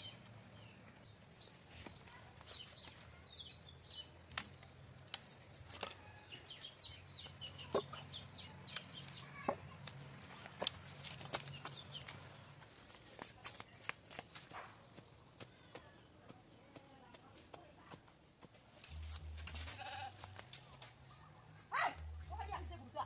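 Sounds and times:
birds chirping and clucking: 5.1s - 12.6s.

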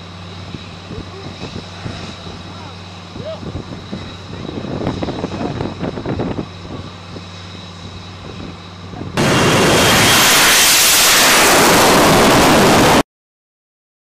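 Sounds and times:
jet engine humming: 0.0s - 13.0s
loud jet roar: 9.2s - 13.0s.

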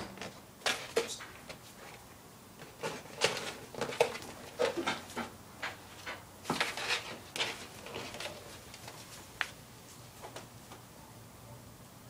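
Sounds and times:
cardboard rustling: 2.6s - 9.6s
cardboard box scraping on tile: 6.0s - 9.2s.

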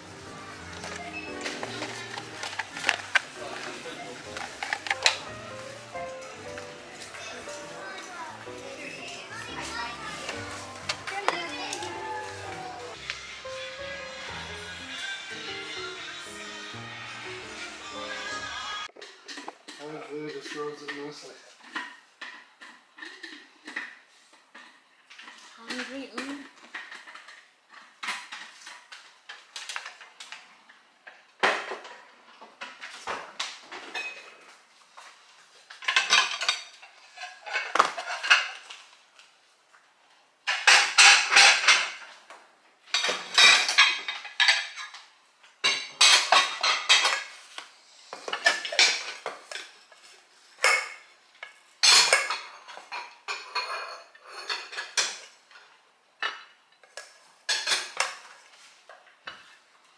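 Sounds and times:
dishes and pots clattering: 0.2s - 11.6s, 19.0s - 30.0s, 31.1s - 34.6s, 35.7s - 38.8s, 40.4s - 47.5s, 48.1s - 59.6s.

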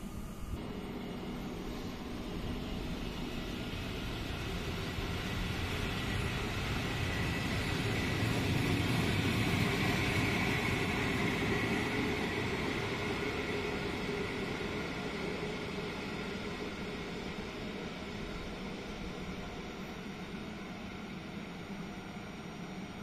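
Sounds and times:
high whine: 0.0s - 23.0s.

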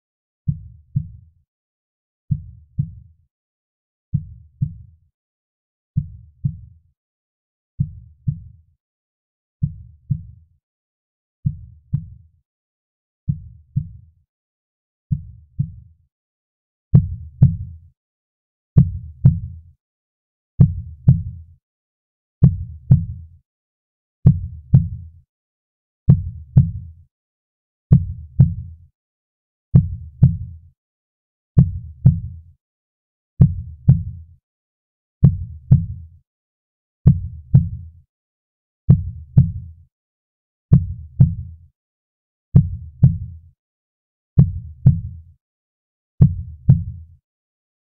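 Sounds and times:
heartbeat thumps: 22.4s - 23.2s, 29.8s - 30.4s, 35.2s - 36.0s, 37.1s - 37.8s, 38.9s - 39.6s.

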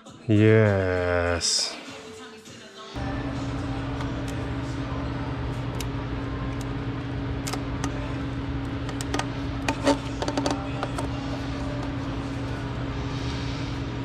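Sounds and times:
steady low hum: 3.0s - 14.0s.

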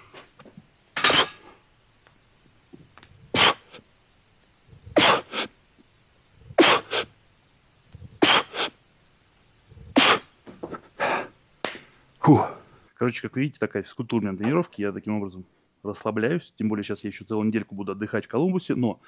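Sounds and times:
man grunting: 12.2s - 12.6s.

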